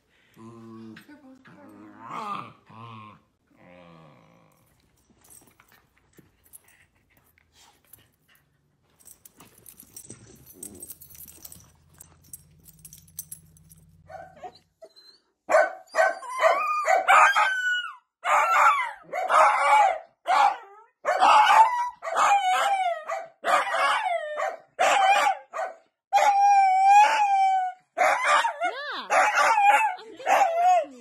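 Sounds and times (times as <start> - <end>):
dog barking: 14.1 - 14.5, 15.5 - 17.5, 18.2 - 26.4, 28.0 - 30.9.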